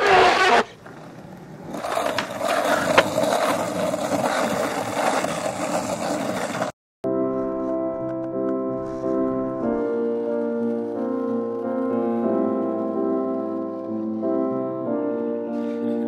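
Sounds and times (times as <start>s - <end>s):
skateboard wheels rolling on pavement: 0.0s - 6.8s, 8.8s - 15.7s
sharp skateboard clicks: 0.8s - 6.7s
piano music: 7.0s - 16.0s.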